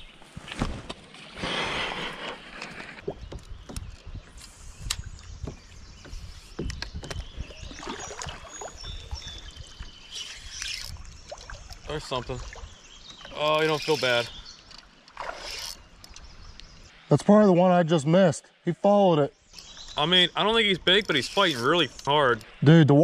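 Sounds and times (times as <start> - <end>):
water splashing against kayak: 0.4 - 15.8
knocks and clicks on hull: 3.0 - 4.2, 4.8 - 9.0.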